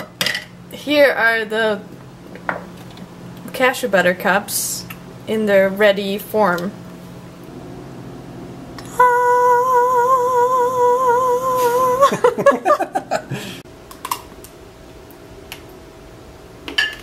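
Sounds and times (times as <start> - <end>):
person singing with vibrato: 8.8 - 12.6.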